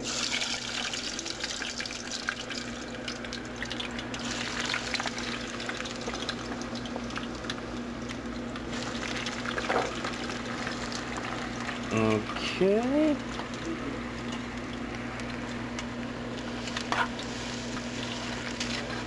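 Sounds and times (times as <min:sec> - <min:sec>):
oil sizzling and crackling: 0:00.0 - 0:12.3, 0:13.0 - 0:19.0
steady low hum: 0:00.0 - 0:19.0.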